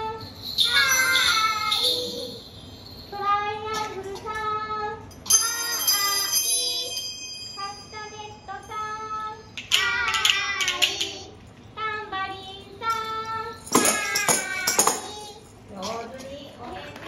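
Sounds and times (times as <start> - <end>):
bright metallic ring: 0.0 - 10.6
handheld bells jingling: 0.0 - 11.3, 12.8 - 16.2.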